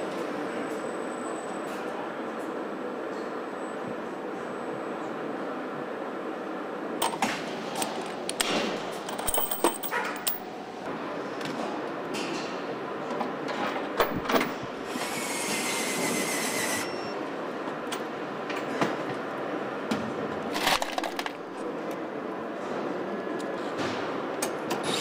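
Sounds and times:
factory background din: 0.0 - 25.0
hissing tool whir: 14.9 - 17.1.

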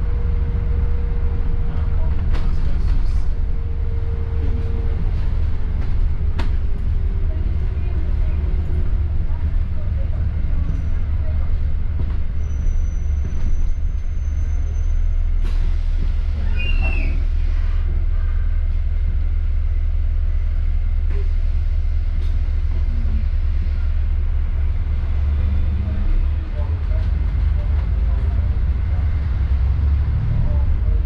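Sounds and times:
bus engine and road rumble: 0.0 - 31.0
brief high squeal: 16.4 - 17.2.

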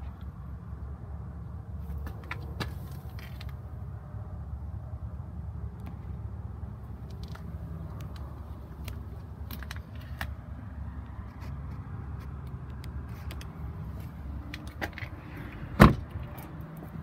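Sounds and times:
truck door shutting: 15.8 - 16.2.

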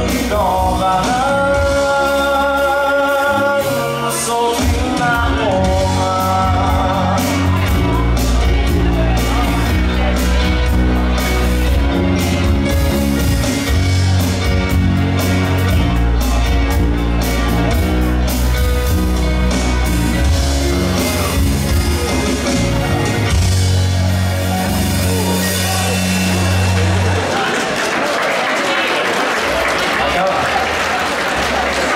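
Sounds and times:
person singing: 0.0 - 14.5, 19.2 - 27.1
electric bass: 0.0 - 27.4
drums: 0.0 - 28.0
rock band playing: 0.0 - 31.9.

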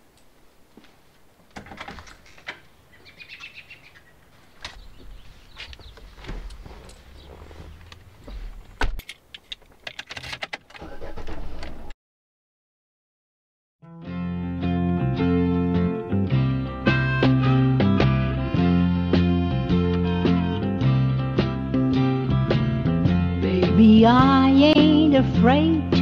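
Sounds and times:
car engine humming: 2.2 - 9.9.

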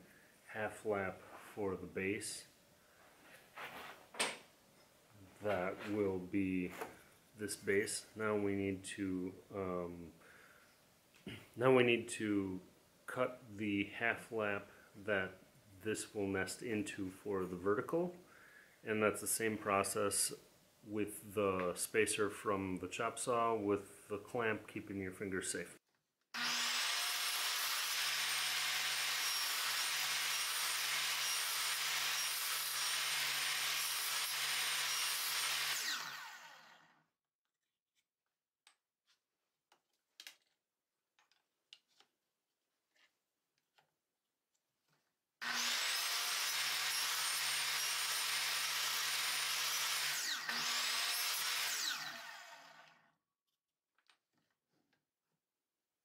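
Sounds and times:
miter saw cutting wood: 26.4 - 36.9, 45.4 - 53.0.

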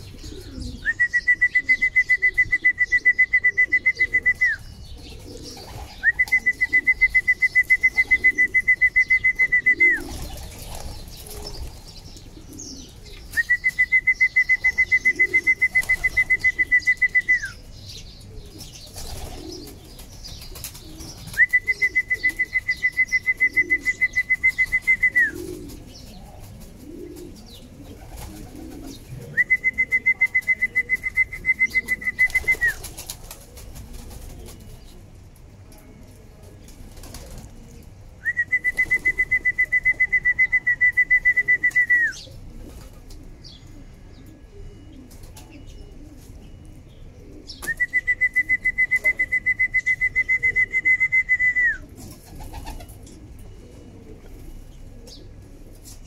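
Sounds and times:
pigeons cooing: 0.0 - 35.1, 35.8 - 56.0
wings flapping: 9.9 - 12.0, 15.4 - 17.1, 18.7 - 23.0, 28.0 - 29.0, 31.8 - 34.8, 52.0 - 53.0.

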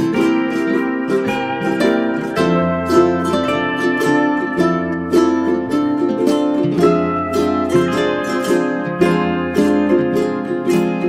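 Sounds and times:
plucked string melody with beat: 0.0 - 11.0.

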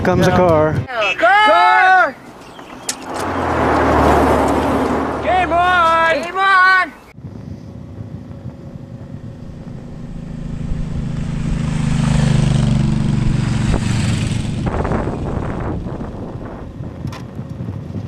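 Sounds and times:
motorcycle engine running: 7.2 - 18.0
wind noise: 7.2 - 18.0.

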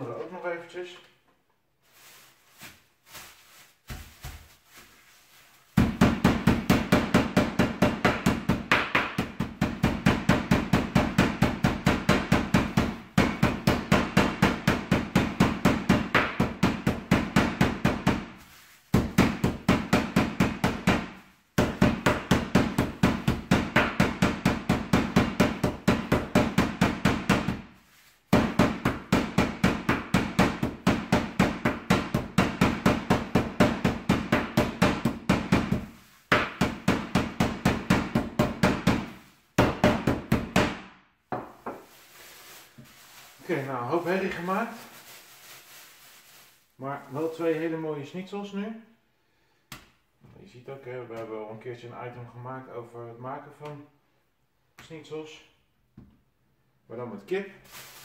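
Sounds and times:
rolling pin pounding meat: 5.8 - 18.3, 19.0 - 27.6, 28.3 - 40.8.

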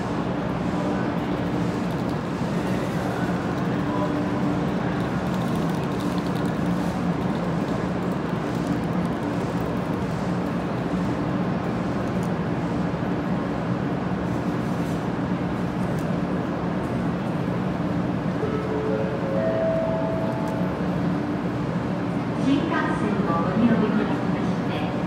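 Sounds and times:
train equipment hum and whir: 0.0 - 25.0.

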